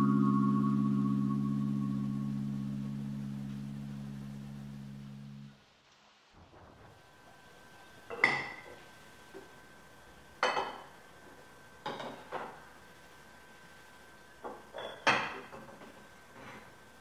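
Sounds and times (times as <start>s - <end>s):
ceramic dishes clinking: 10.4s - 10.8s, 14.8s - 15.6s.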